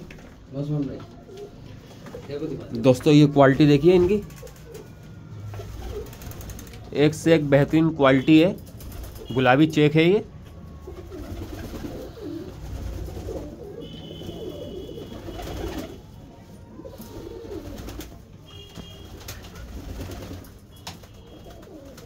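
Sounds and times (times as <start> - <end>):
pigeons cooing: 1.0 - 2.8, 3.6 - 6.9, 10.7 - 18.3, 21.2 - 22.0.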